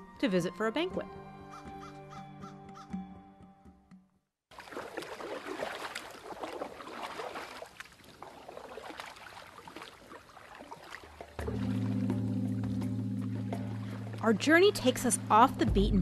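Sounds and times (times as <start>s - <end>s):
music: 0.0s - 4.3s, 11.3s - 16.0s
water splashing against canoe: 4.5s - 15.6s.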